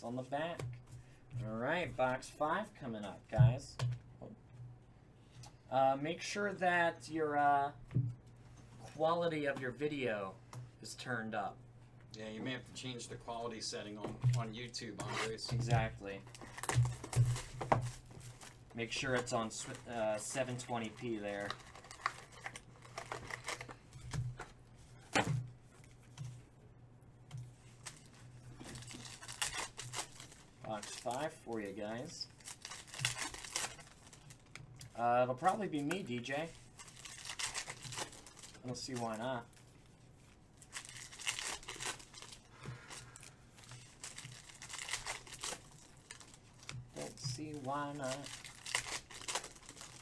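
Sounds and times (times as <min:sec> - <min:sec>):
foil packs crinkling: 0:15.4 - 0:24.0, 0:27.8 - 0:39.7, 0:40.6 - 0:50.0.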